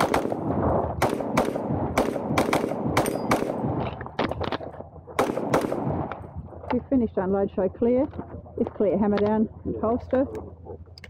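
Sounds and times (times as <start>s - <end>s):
rapid pistol fire: 0.0s - 3.8s, 5.2s - 6.3s.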